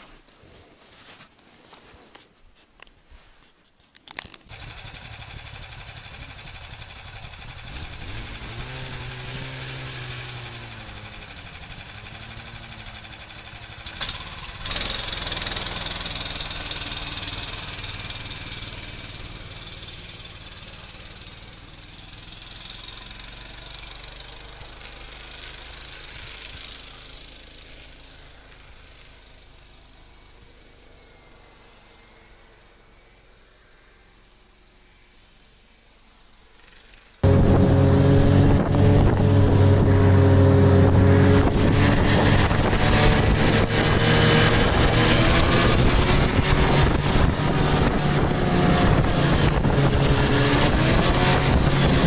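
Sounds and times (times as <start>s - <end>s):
snowmobile engine revving: 4.5s - 28.5s, 37.2s - 52.0s.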